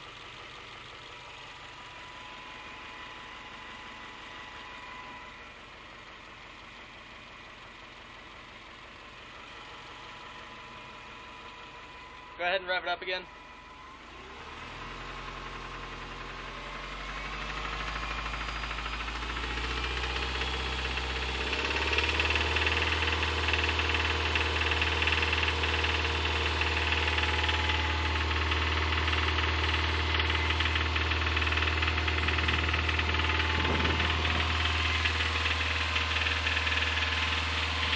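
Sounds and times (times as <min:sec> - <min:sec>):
car engine revving: 0:13.4 - 0:37.9
engine bearing knocking: 0:21.4 - 0:37.9.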